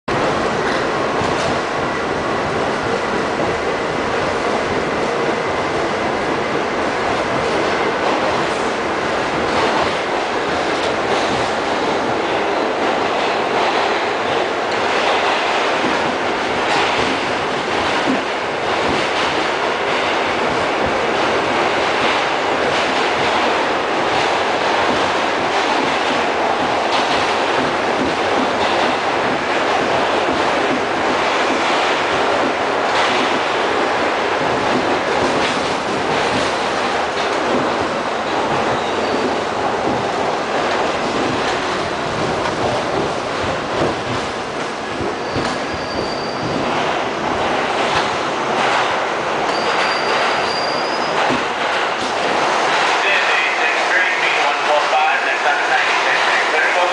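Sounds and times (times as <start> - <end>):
subway wheels rumbling on rail: 0.0 - 56.9
high squeal: 45.2 - 46.6, 49.5 - 51.3.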